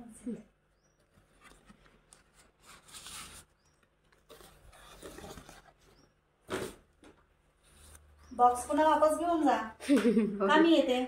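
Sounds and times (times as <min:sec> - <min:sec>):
cardboard box rustling: 0:01.2 - 0:06.8.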